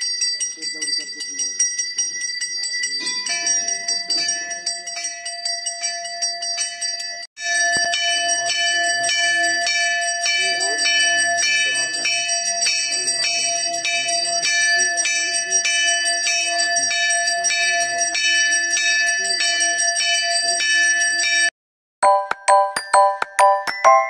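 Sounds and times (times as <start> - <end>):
temple bells ringing: 0.0 - 24.0
short chiming tune: 22.0 - 24.0.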